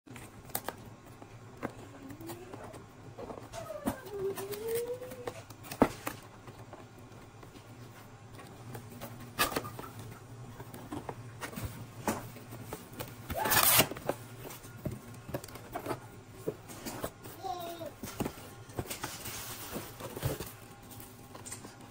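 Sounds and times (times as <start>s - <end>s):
cardboard scraping and tearing: 13.3s - 14.1s.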